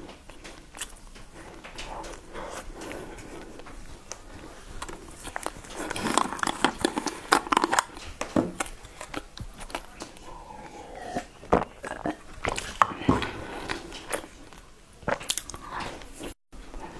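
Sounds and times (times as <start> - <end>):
chewing: 0.0 - 16.9
plastic bottle clicks and crinkles: 4.8 - 10.2.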